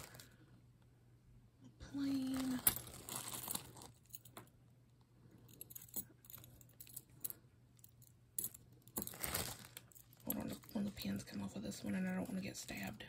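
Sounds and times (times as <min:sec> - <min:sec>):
metal pins and jewelry clinking: 0:02.1 - 0:04.6, 0:05.2 - 0:13.0.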